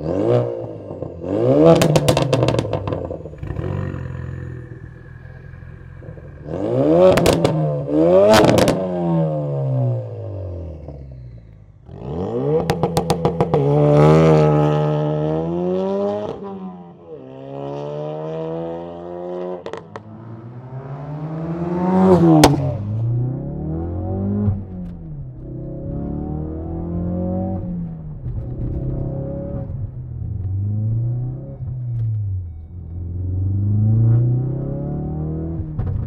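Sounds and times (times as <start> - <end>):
car engine revving and accelerating: 0.0 - 32.3, 32.9 - 36.0
exhaust crackles: 1.7 - 8.9.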